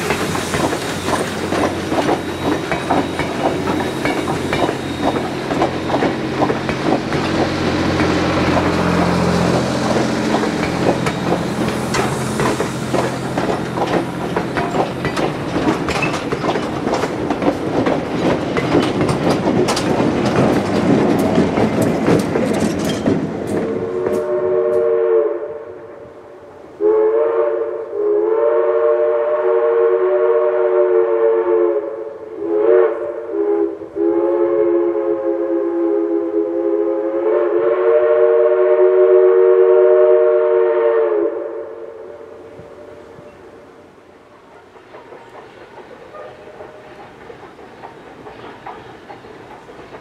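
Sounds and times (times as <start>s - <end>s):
steam locomotive passing: 0.0s - 50.0s
steam whistle blasts: 23.8s - 26.0s, 26.8s - 43.2s.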